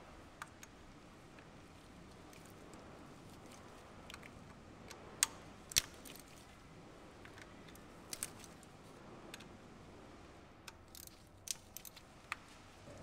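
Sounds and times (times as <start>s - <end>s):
sharp plastic clicks and taps: 0.4s - 1.5s, 4.0s - 6.4s.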